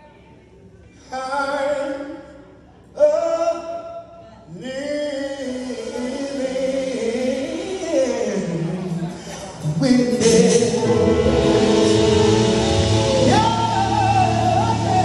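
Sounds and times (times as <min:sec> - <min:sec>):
gospel singers through pa: 0:04.5 - 0:15.0.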